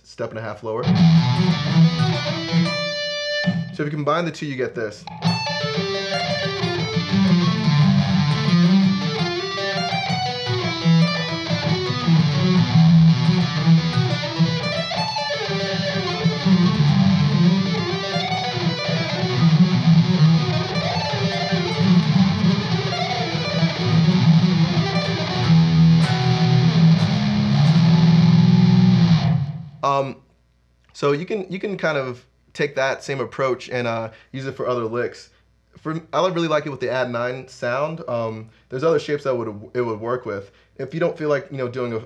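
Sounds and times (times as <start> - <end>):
electric guitar arpeggio: 0.8 - 3.8, 5.1 - 29.8.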